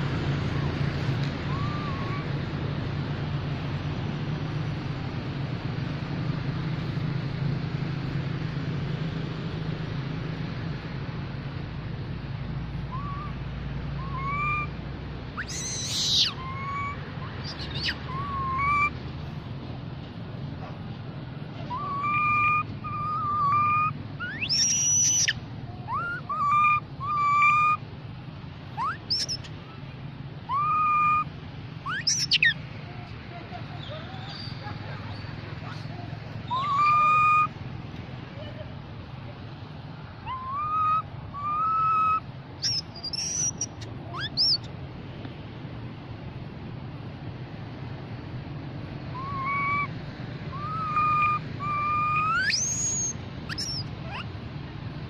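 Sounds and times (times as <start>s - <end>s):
macaque coo calls: 1.4s - 2.3s, 12.9s - 13.4s, 14.0s - 14.7s, 15.4s - 18.9s, 21.6s - 27.8s, 28.8s - 29.5s, 30.5s - 32.6s, 33.8s - 37.5s, 40.2s - 44.7s, 49.1s - 49.9s, 50.5s - 54.3s
macaque high rising squeaks: 1.4s - 2.4s, 12.9s - 13.4s, 14.0s - 14.7s, 15.4s - 19.0s, 21.6s - 27.8s, 28.8s - 29.5s, 30.5s - 32.6s, 33.8s - 37.5s, 40.2s - 44.7s, 49.1s - 54.4s.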